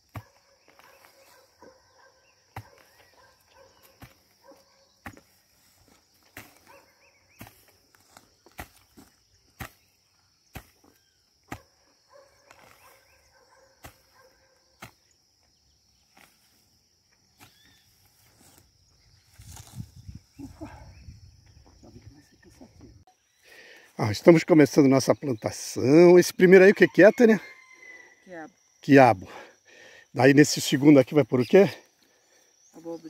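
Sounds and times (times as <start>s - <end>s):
scraping and rustling in soil: 0.0s - 20.6s
insect buzz: 0.0s - 33.0s
hoe chopping into soil: 5.0s - 6.8s, 7.4s - 11.7s, 13.8s - 14.1s.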